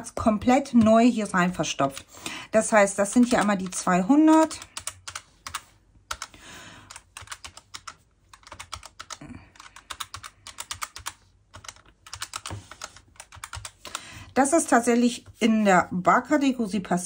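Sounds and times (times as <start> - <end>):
calculator keys clicking: 0.4 - 2.1, 2.9 - 14.1.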